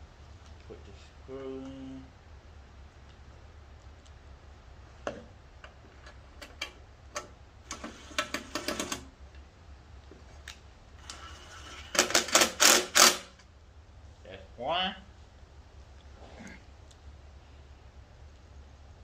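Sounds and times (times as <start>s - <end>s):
cordless driver clicking: 12.1s - 13.2s.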